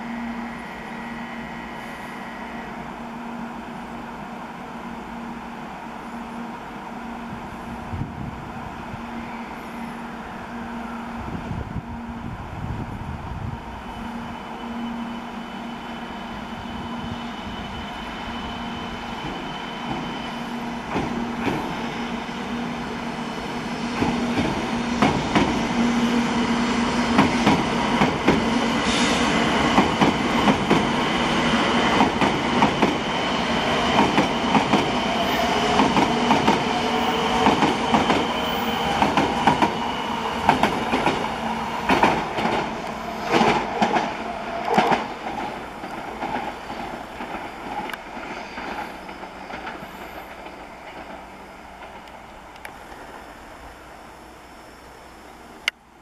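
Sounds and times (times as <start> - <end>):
train wheels clicking over rails: 23.9 - 53.1.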